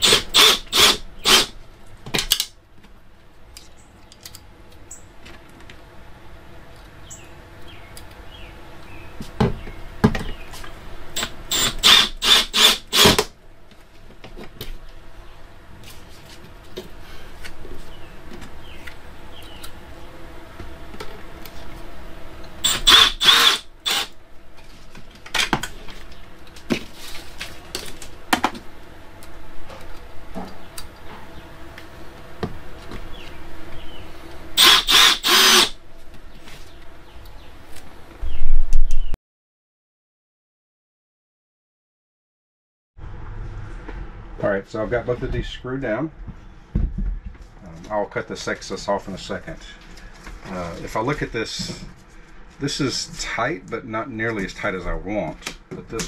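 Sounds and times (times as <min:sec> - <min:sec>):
cordless drill driving screws: 0:00.0 - 0:01.5, 0:11.2 - 0:13.3, 0:22.6 - 0:24.2, 0:34.6 - 0:35.8.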